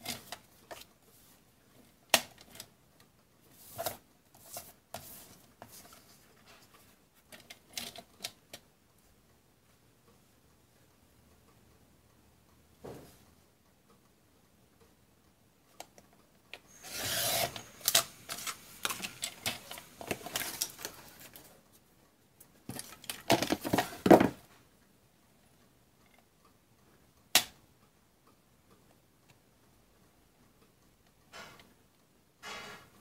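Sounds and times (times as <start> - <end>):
paper rustling and scraping: 3.6 - 6.7.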